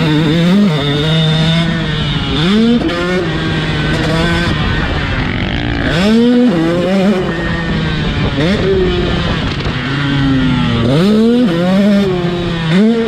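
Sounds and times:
motocross bike engine revving: 0:00.0 - 0:13.0
wind rushing over microphone: 0:02.7 - 0:13.0.

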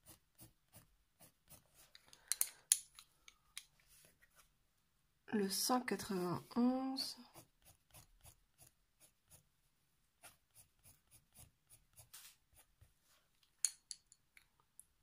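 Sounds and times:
pencil scratching on paper: 0:00.0 - 0:01.9, 0:07.2 - 0:09.5, 0:10.2 - 0:12.9.

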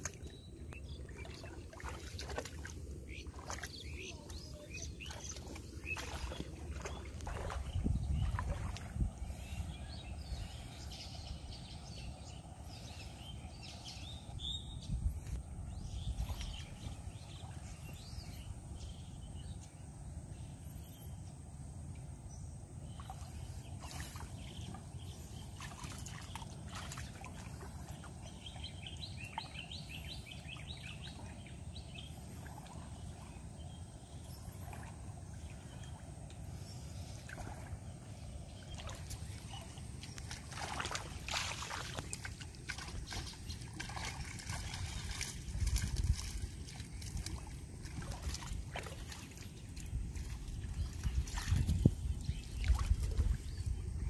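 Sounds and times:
shallow water splashing: 0:00.0 - 0:09.6, 0:22.9 - 0:53.8
birds chirping: 0:00.0 - 0:21.6, 0:22.2 - 0:54.0.

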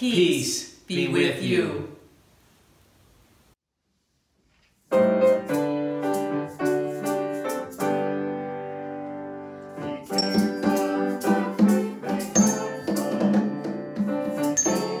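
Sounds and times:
piano chords: 0:04.9 - 0:15.0.

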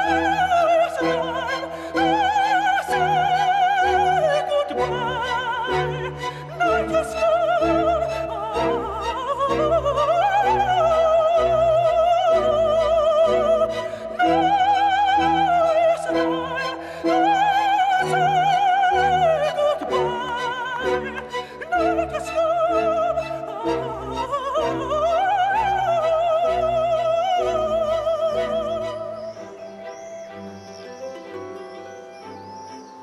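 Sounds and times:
man singing operatically: 0:00.0 - 0:29.2.

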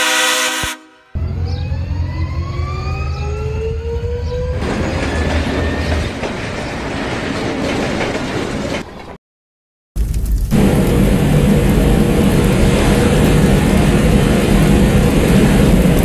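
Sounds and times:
train whine and rumble: 0:00.0 - 0:09.2, 0:10.0 - 0:16.0
rail cars clattering past: 0:04.0 - 0:09.2, 0:10.5 - 0:16.0.

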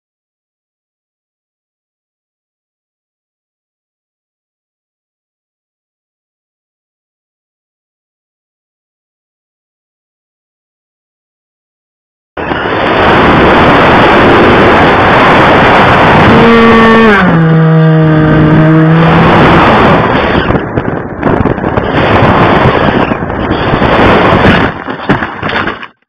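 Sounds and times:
model plane motor and propeller: 0:12.4 - 0:26.0
wind rush over microphone: 0:12.4 - 0:26.0.

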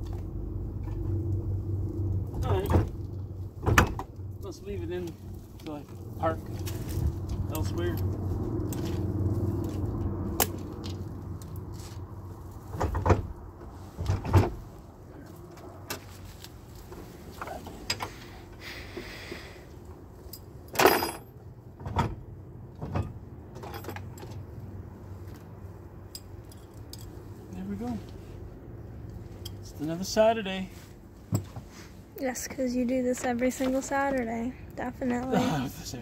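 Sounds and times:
low steady hum: 0:00.0 - 0:36.0
metal clanks and chain rattles: 0:20.2 - 0:22.2, 0:22.9 - 0:24.4.

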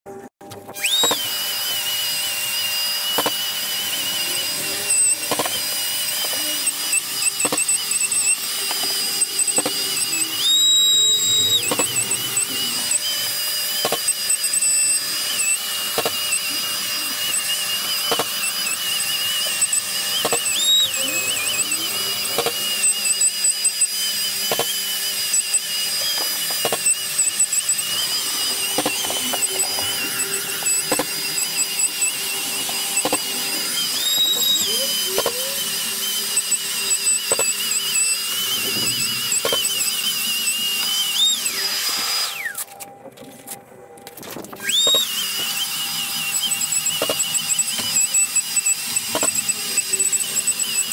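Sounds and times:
drywall sander whine: 0:00.1 - 0:50.9.

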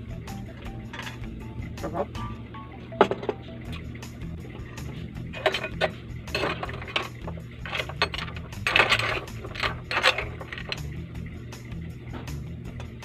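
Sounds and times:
clam shells clinking: 0:05.4 - 0:11.0.

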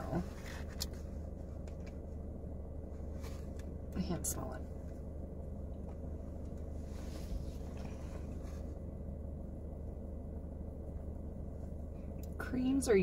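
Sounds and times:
low hum in car cabin: 0:00.0 - 0:13.0.

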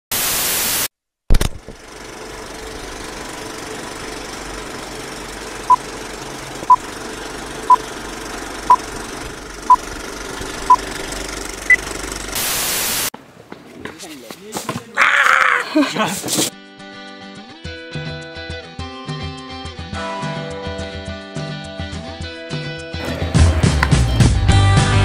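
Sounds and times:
tv static burst: 0:00.1 - 0:00.9, 0:12.4 - 0:13.1
old film hiss: 0:12.4 - 0:13.1.

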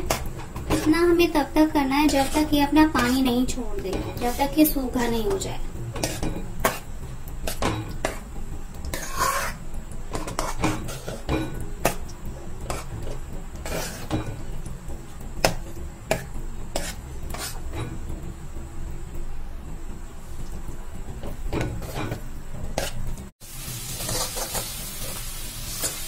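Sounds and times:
spoon clinking and scraping pan: 0:00.0 - 0:08.3, 0:08.9 - 0:12.0, 0:23.9 - 0:25.2.

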